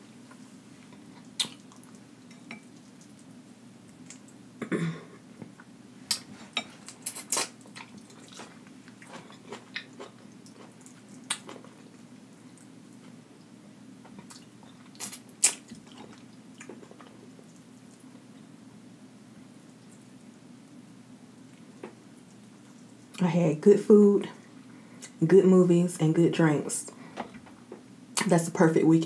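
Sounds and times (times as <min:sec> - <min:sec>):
chewing and wet mouth smacks: 0:01.2 - 0:03.3, 0:06.1 - 0:12.7, 0:14.1 - 0:18.1.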